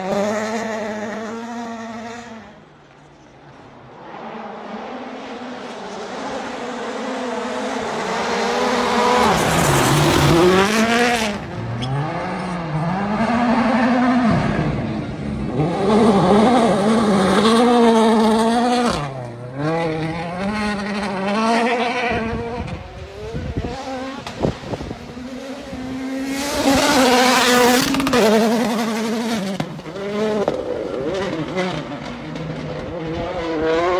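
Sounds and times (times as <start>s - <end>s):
rally car engines revving past: 0.0s - 33.9s.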